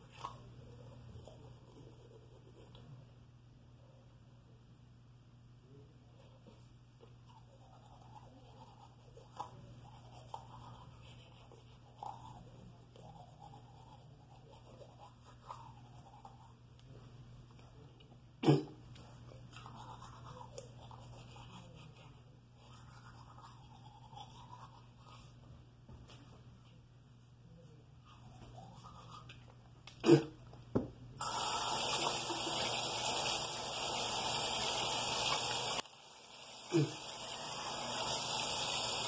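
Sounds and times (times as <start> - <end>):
toothbrush scrubbing teeth: 0.0 - 2.9, 6.4 - 16.7, 19.0 - 25.4, 28.1 - 29.6.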